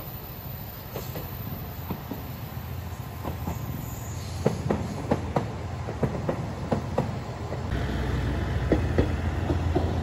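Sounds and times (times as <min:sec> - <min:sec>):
train wheels clacking over rail joints: 0:00.8 - 0:02.3, 0:03.2 - 0:10.0.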